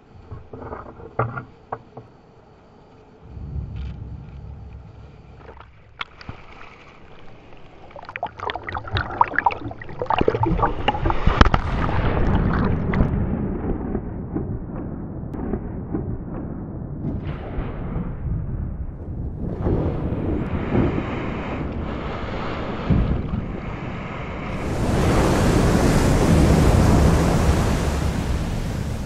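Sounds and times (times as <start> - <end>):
water splashing and bubbling: 5.4 - 13.2, 21.8 - 29.0
surf rushing: 20.4 - 29.0.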